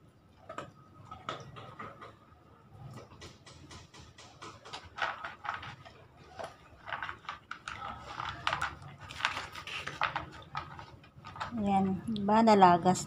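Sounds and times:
dog crunching dry kibble: 0:04.5 - 0:11.9.

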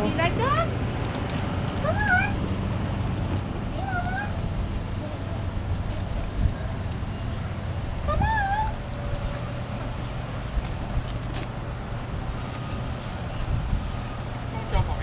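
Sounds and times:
low steady rumble: 0:00.0 - 0:15.0
dog whining: 0:01.8 - 0:02.4, 0:03.8 - 0:04.4, 0:08.0 - 0:08.8.

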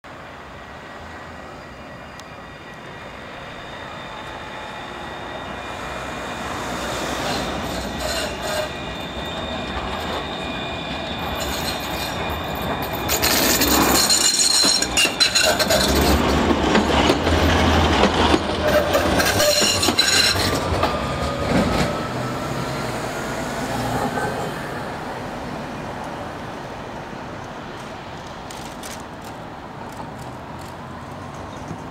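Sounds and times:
tram passing: 0:00.0 - 0:31.9
wheels squealing on track: 0:02.9 - 0:22.7
wheels clacking over rail joints: 0:07.2 - 0:22.2.

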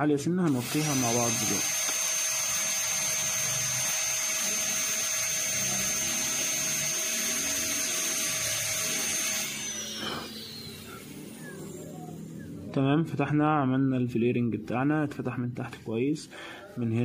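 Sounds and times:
dental drill whine: 0:00.5 - 0:12.7.

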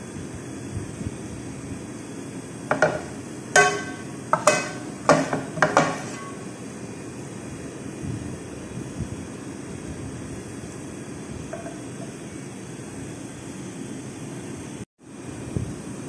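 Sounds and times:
steady low hum: 0:00.0 - 0:16.0
metal spoon clinking on glass dish: 0:03.6 - 0:06.4.

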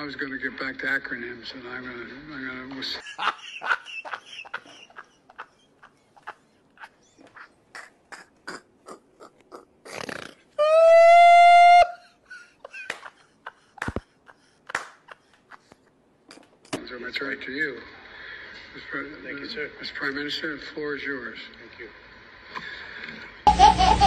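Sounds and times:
man laughing hysterically: 0:03.0 - 0:09.7, 0:10.6 - 0:15.8, 0:23.5 - 0:24.0.

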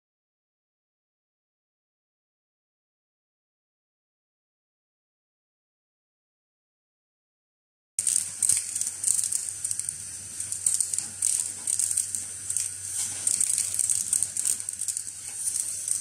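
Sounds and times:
clippings crackling through tube: 0:08.0 - 0:16.0
vacuum hissing: 0:08.0 - 0:16.0.

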